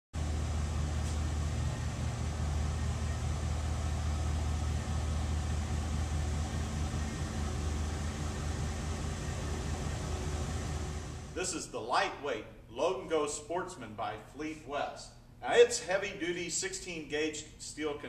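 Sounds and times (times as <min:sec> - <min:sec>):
pickup truck engine idling: 0:00.2 - 0:11.4.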